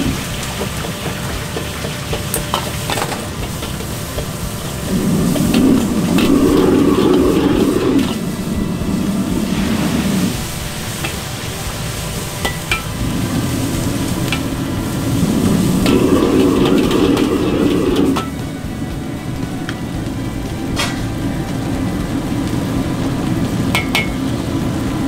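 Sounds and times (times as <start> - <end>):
gas burner roaring: 0.0 - 25.0
noodles sizzling: 0.0 - 25.0
ladle clanking against wok: 0.1 - 6.3, 23.7 - 24.3.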